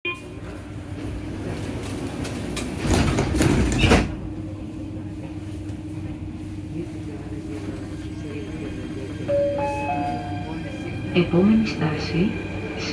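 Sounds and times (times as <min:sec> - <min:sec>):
train hum with low tone: 0:00.1 - 0:12.9
train doors sliding shut: 0:01.4 - 0:04.4.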